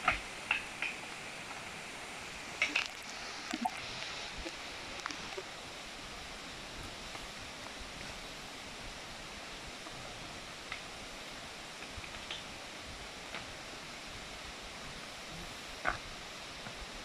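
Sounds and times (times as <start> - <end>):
steady rushing hiss: 0.0 - 17.0.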